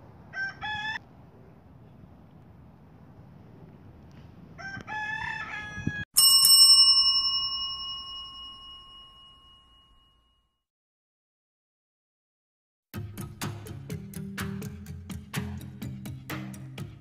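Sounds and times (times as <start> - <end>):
rooster crowing: 0.3 - 1.0, 4.6 - 6.1
bell-like chime ringing: 6.2 - 10.6.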